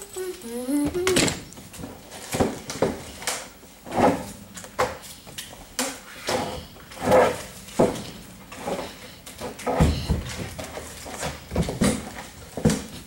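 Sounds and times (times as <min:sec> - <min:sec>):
person humming: 0:00.0 - 0:01.4.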